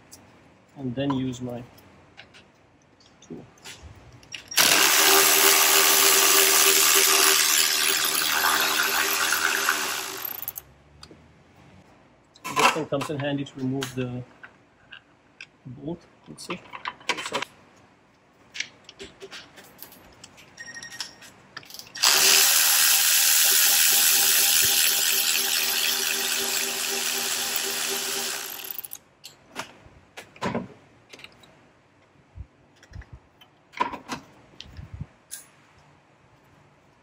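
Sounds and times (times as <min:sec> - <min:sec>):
electric ratchet spinning: 0:04.6 - 0:10.6, 0:21.7 - 0:29.0.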